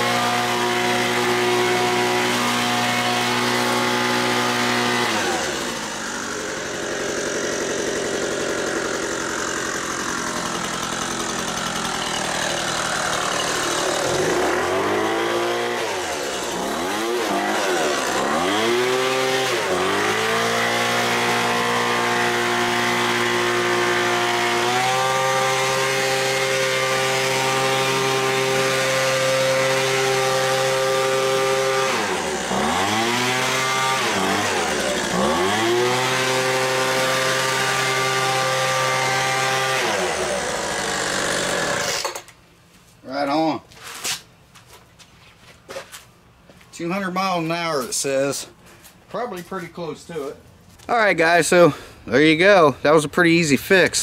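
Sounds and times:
leaf blower engine revving: 0.0s - 42.4s.

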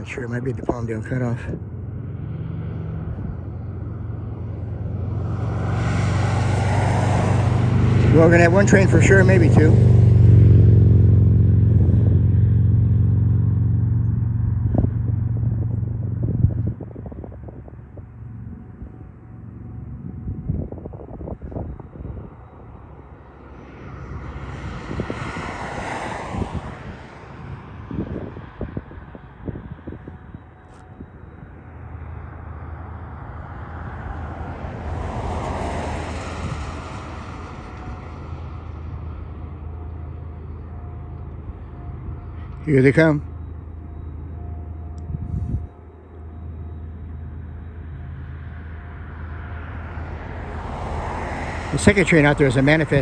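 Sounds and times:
large engine droning: 0.0s - 53.0s
vehicle whooshing by: 1.2s - 18.8s, 23.2s - 28.9s, 33.4s - 38.9s.

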